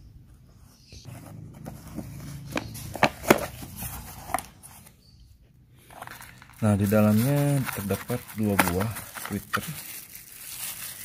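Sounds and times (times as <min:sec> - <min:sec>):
cardboard rustling and snapping: 0:07.2 - 0:09.7.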